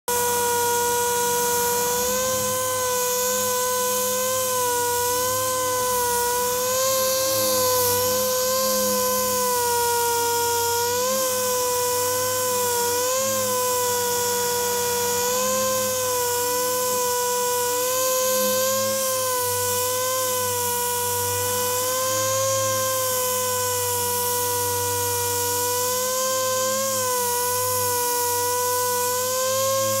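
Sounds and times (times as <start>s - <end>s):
air-powered orbital sander whine: 0.0s - 30.0s.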